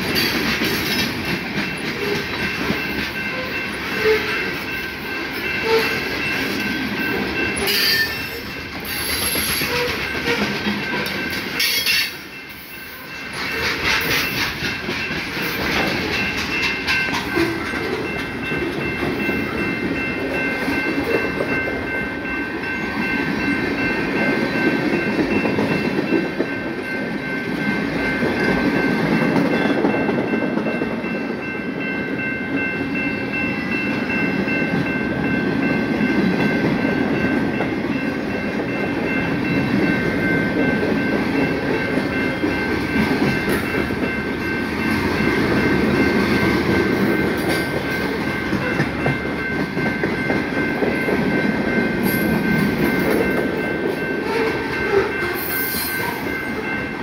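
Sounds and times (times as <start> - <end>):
wheels clickety-clack on joints: 0.0 - 4.7, 5.6 - 12.2, 13.2 - 21.7, 38.9 - 56.3
train wheels rumbling on rail: 0.0 - 57.0.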